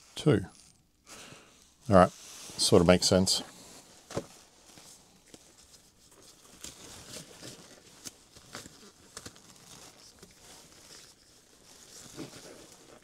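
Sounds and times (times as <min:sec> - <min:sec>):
rubber gloves rustling: 0:03.5 - 0:13.0.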